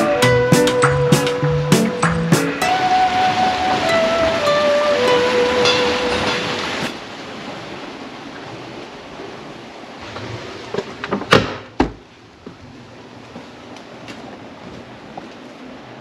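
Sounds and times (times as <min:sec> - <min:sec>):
water rushing: 0:00.0 - 0:11.3
wooden door knocks and clunks: 0:11.1 - 0:12.0.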